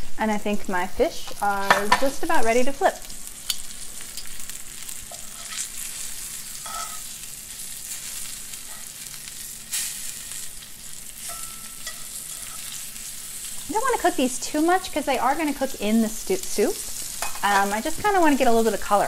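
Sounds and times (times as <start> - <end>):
fish frying sizzle: 0.0 - 19.0
metal tongs clicking on pan: 6.6 - 7.1.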